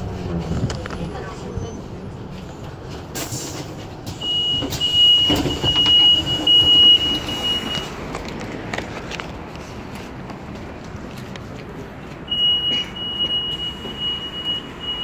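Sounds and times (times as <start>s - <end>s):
trolleybus interior rumble: 0.0s - 15.0s
high electronic beep: 12.3s - 15.0s.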